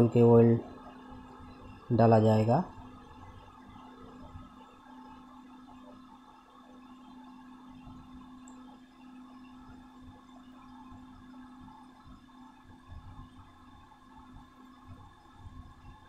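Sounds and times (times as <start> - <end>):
faint steady hum: 0.0 - 16.0.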